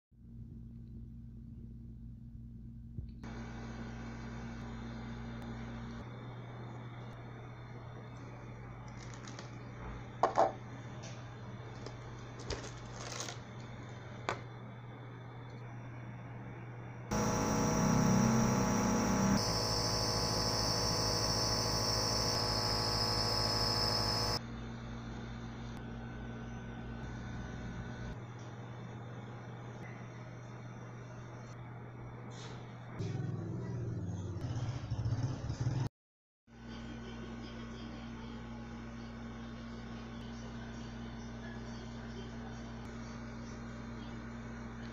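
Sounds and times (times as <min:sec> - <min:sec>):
low electrical hum: 0:00.2 - 0:32.1
plastic packaging crinkling: 0:08.9 - 0:09.6, 0:11.7 - 0:13.7
loud machine buzz: 0:17.1 - 0:24.4.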